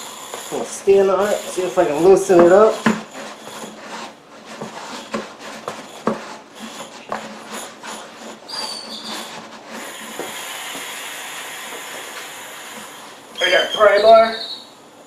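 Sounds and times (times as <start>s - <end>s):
short high squeak: 8.5s - 9.3s, 13.4s - 14.8s.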